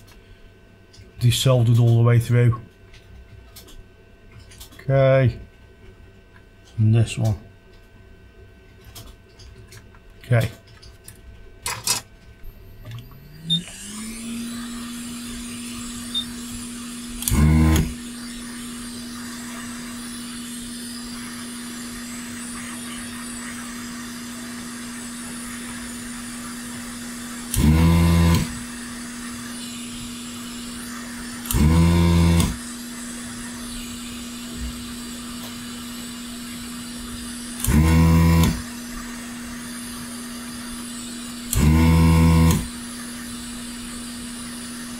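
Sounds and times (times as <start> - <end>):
short electric buzzes: 12.4 - 36.0, 36.7 - 39.2, 40.3 - 42.9
hot air blower humming: 12.4 - 44.9.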